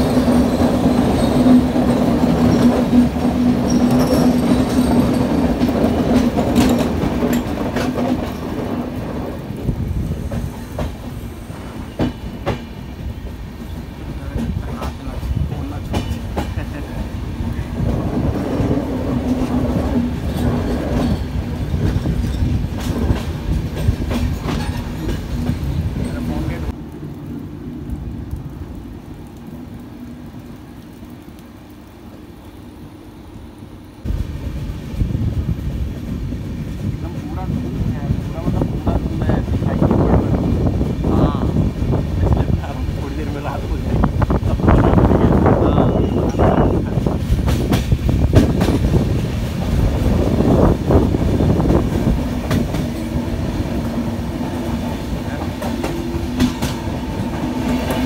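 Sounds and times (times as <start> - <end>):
wheels clicking over rail joints: 0.0 - 26.8, 41.8 - 58.0
train rumbling on track: 0.0 - 58.0.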